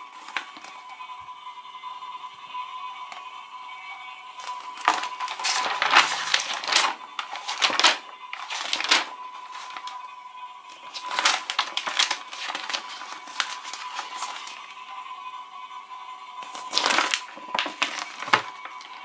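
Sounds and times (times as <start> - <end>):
magazine pages rustling: 0.0 - 1.0, 4.4 - 10.1, 10.7 - 14.6, 16.4 - 19.0.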